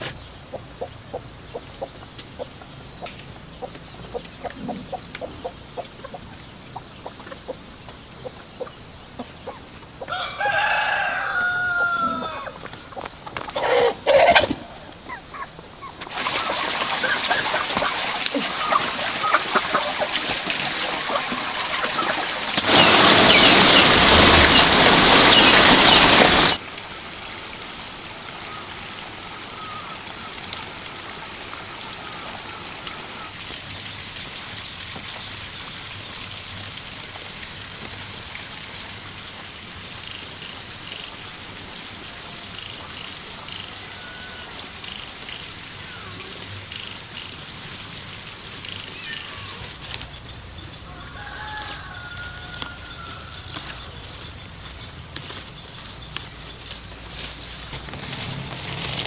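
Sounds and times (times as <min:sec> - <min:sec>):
dry straw rustling: 0:49.7 - 0:59.0.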